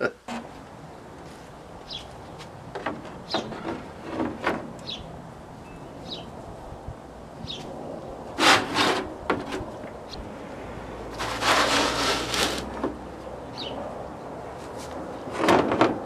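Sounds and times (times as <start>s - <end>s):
bird chirping: 1.8s - 2.4s, 3.2s - 3.6s, 4.8s - 6.4s, 7.4s - 7.7s, 13.4s - 13.8s
knocks and rubbing on metal: 2.7s - 4.7s
scrape on metal table: 8.4s - 9.6s, 11.1s - 12.7s.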